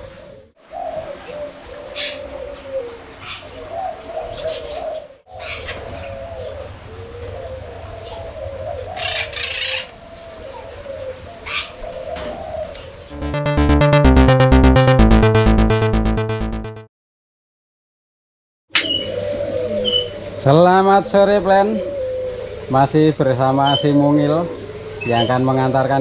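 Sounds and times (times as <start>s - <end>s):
doves cooing: 0.6s - 13.0s, 18.8s - 26.0s.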